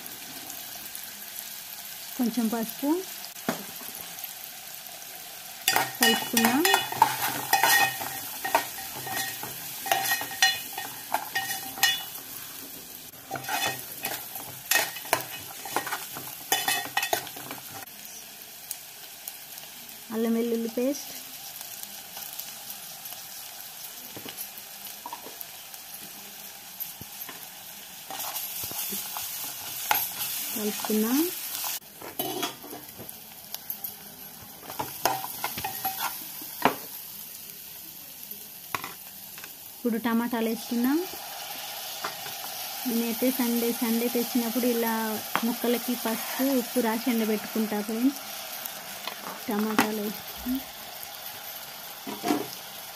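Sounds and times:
onions sizzling in oil: 0.0s - 52.9s
metal spoon scraping a pot: 5.7s - 12.2s, 13.3s - 17.5s.

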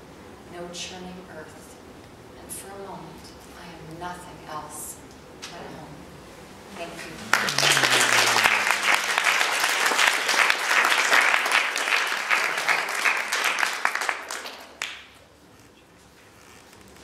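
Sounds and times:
audience clapping: 7.1s - 15.2s.

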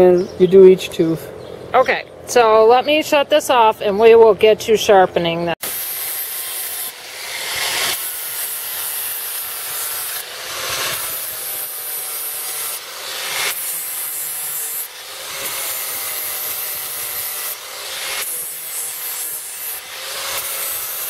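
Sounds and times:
angle grinder grinding steel: 5.6s - 21.0s.

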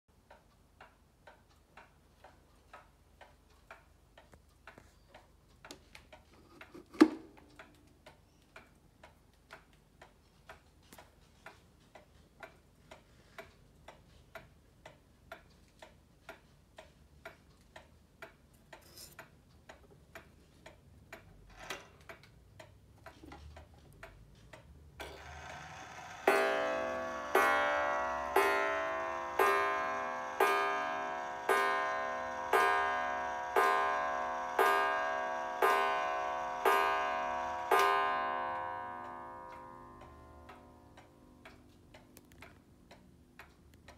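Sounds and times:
pendulum clock ticking: 0.1s - 43.9s
clock strike train whirring: 25.0s - 40.8s
clock striking the hour: 25.0s - 42.1s.

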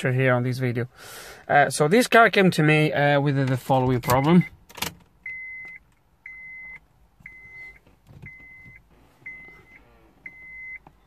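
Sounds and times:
car warning chime beeping: 3.9s - 11.0s.

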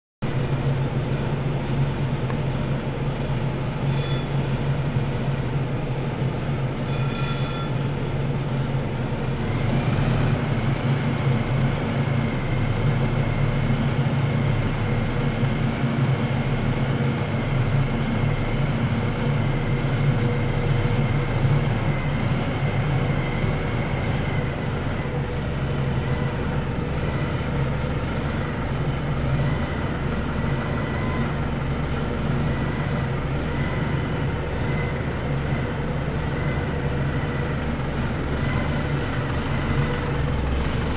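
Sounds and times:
forklift running: 0.2s - 40.9s
steady high whine: 0.3s - 40.9s
brief high beeps: 6.9s - 7.8s.

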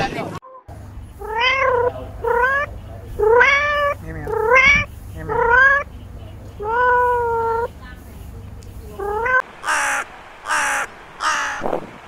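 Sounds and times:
cat meowing: 1.2s - 5.9s, 6.6s - 7.7s, 9.0s - 9.4s.

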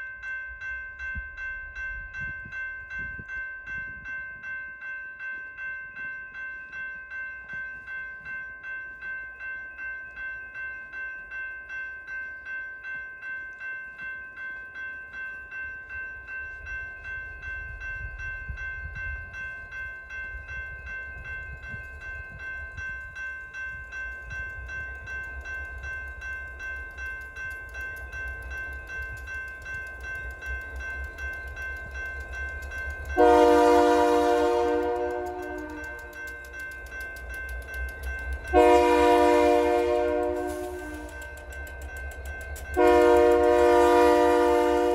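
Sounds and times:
crossing warning bell ringing: 0.0s - 44.9s
diesel locomotive running: 16.2s - 44.9s
locomotive air horn blast: 33.2s - 35.8s, 38.5s - 41.1s, 42.8s - 44.9s.

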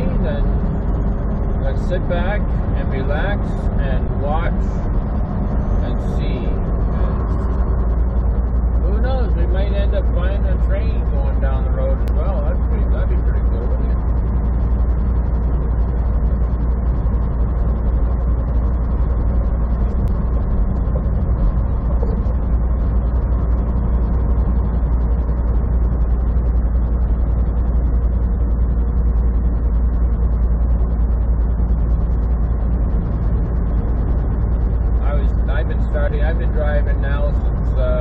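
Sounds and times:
truck engine and road drone: 0.0s - 38.0s.

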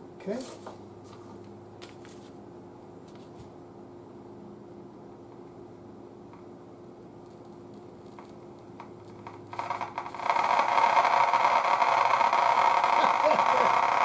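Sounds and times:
faint hum: 0.0s - 14.0s.

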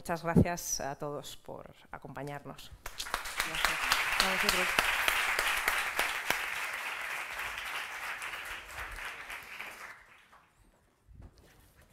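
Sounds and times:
audience applause: 2.9s - 10.6s.

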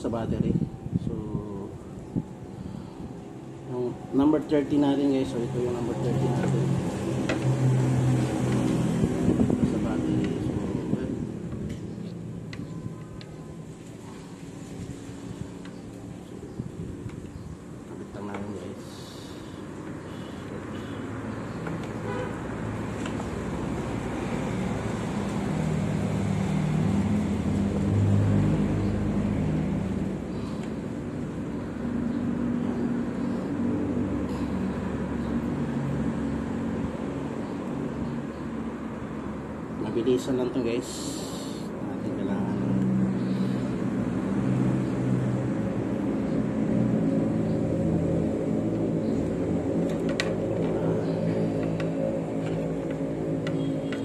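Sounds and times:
low engine drone: 0.0s - 54.0s
vehicle engine running: 42.6s - 54.0s.

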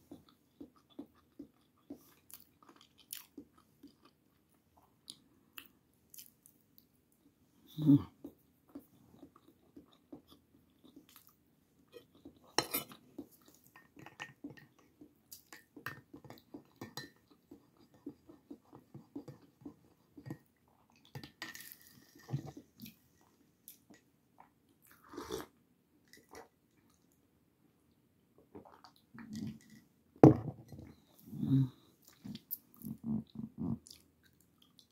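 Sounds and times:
person chewing: 0.1s - 6.9s, 8.2s - 21.1s.

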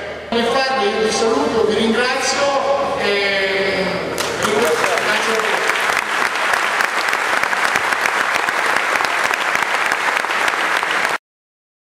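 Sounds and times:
audience applauding: 4.2s - 11.2s.

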